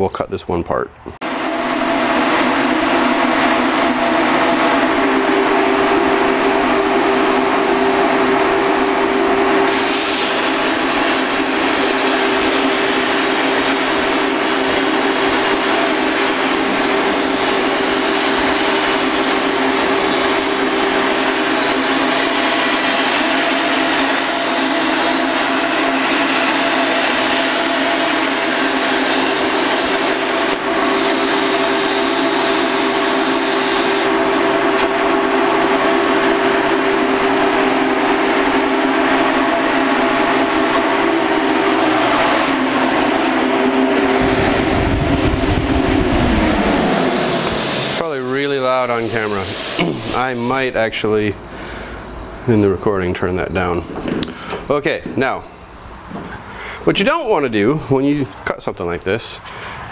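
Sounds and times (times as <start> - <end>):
exhaust fan hum: 0.9 - 59.9
air hiss: 9.7 - 34.2, 46.7 - 50.5
plasma cutter arc hiss: 9.7 - 34.9, 46.8 - 50.5.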